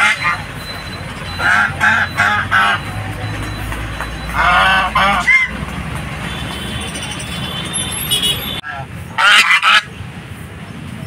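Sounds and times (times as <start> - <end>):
geese honking: 0.0 - 5.8, 8.4 - 9.9.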